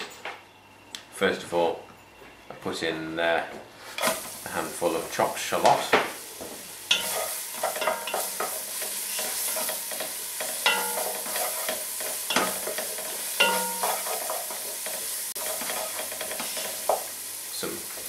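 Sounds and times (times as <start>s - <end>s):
wooden spoon scraping a pan: 3.8s - 4.4s, 6.5s - 17.1s
shallots sizzling in a pan: 3.8s - 18.0s
spoon knocking on metal pan: 6.9s - 8.6s, 9.6s - 14.5s.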